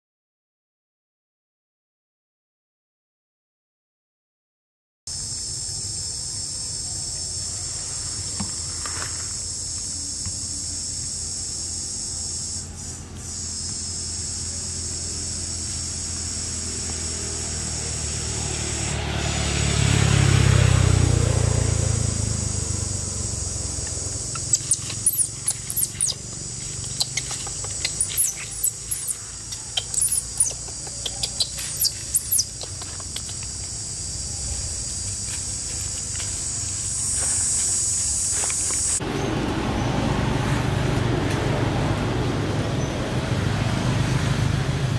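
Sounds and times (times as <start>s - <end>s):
insects buzzing: 5.1s - 40.8s
high-pitched squeaks: 24.3s - 33.4s.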